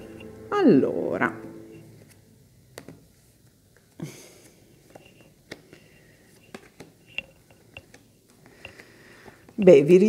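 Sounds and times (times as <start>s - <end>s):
cards snapped onto table: 2.7s - 3.0s, 5.5s - 5.8s.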